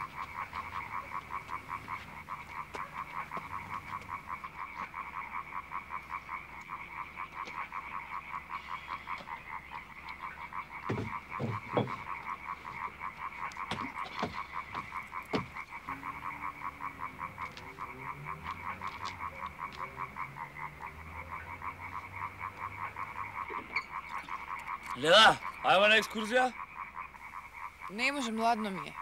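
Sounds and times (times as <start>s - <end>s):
frogs croaking in chorus: 0.0s - 29.0s
sharp knocks: 10.8s - 12.1s, 13.6s - 15.6s.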